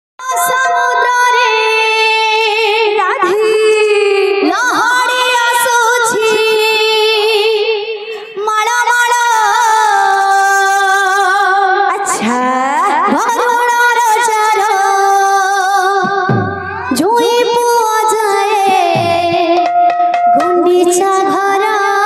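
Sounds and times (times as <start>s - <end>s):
woman singing devotional song: 0.2s - 22.0s.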